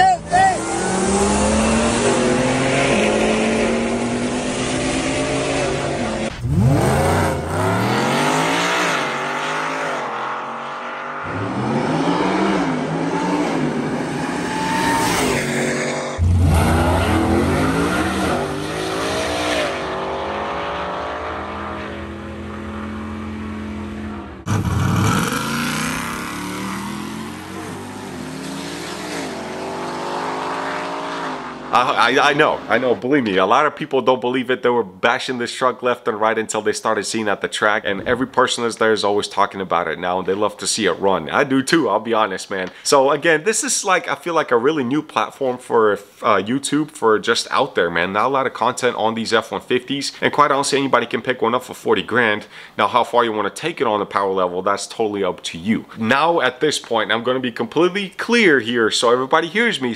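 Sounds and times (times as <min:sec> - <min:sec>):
supercharged engine at full throttle: 0:00.6 - 0:31.7.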